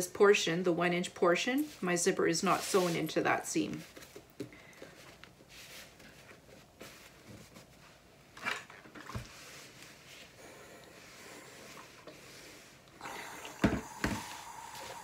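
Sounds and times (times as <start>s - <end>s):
fabric rustling: 1.6s - 8.4s.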